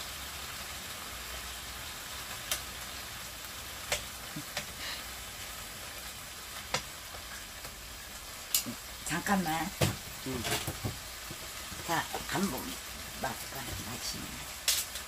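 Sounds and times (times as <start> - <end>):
meat sizzling in a frying pan: 0.0 - 15.0
metal tongs clicking on pan: 14.6 - 15.0.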